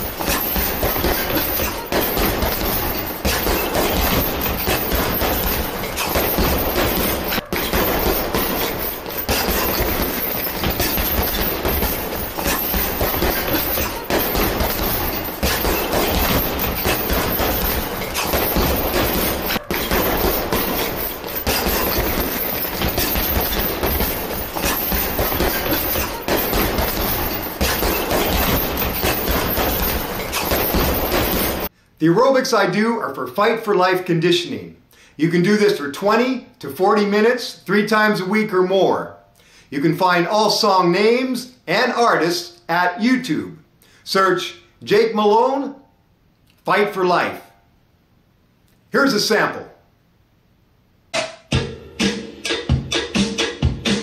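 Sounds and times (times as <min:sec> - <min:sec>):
punches thudding on heavy bag: 0:00.0 - 0:31.7.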